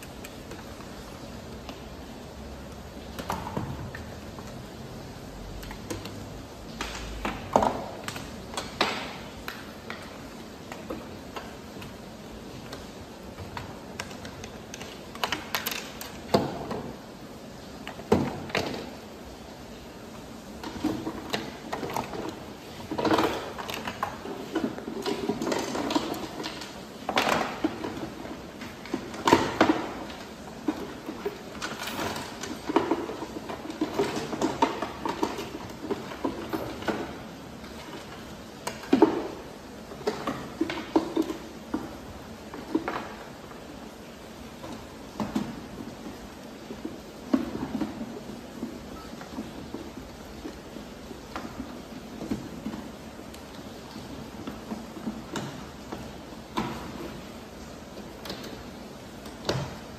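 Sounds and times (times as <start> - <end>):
model parts knocking and clattering: 5.6 - 17.0, 20.6 - 43.4, 58.0 - 59.9.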